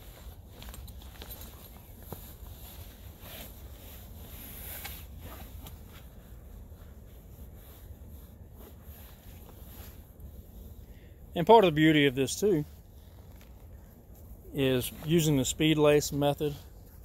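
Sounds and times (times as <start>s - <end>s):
fabric rustling and crinkling: 0.0s - 17.0s.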